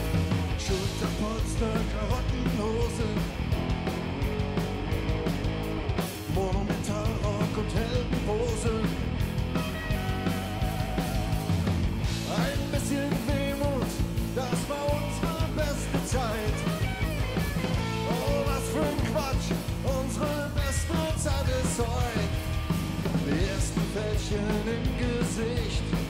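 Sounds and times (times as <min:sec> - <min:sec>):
band playing rock song: 0:00.0 - 0:26.0
drum beat: 0:00.0 - 0:26.0
guitar: 0:00.0 - 0:26.0
person singing: 0:12.2 - 0:16.9, 0:17.9 - 0:22.4, 0:23.2 - 0:26.0.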